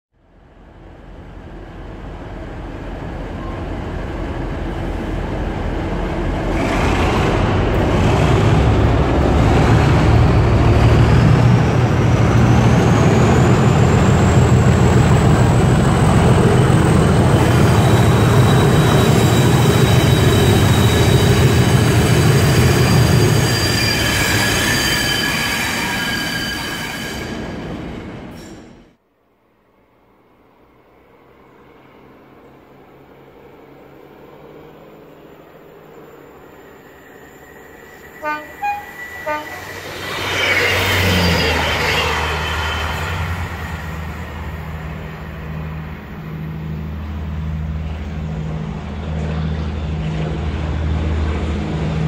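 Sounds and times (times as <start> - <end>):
diesel locomotive engine noise: 0.2 - 26.2, 30.0 - 52.0
train wheel squeals: 12.7 - 27.7, 28.3 - 28.8, 35.7 - 45.3
turbocharger whistle: 37.5 - 43.0.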